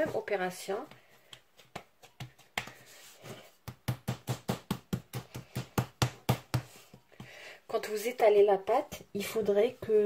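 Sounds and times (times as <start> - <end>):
rolling pin knocking on dough: 3.6 - 7.3.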